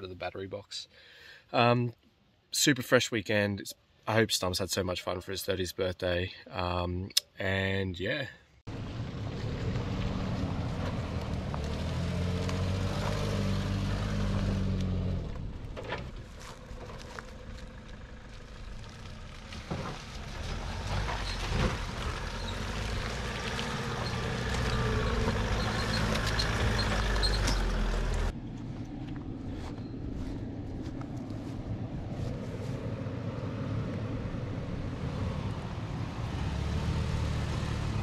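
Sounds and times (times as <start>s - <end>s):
off-road vehicle engines at low revs: 8.7s - 38.0s.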